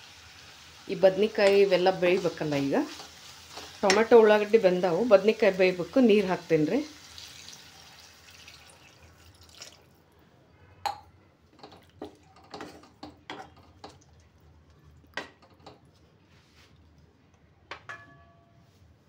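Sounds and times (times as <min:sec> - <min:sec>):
spatula stirring curry: 0:01.1 - 0:04.6
water pouring into a steel pan: 0:07.0 - 0:09.9.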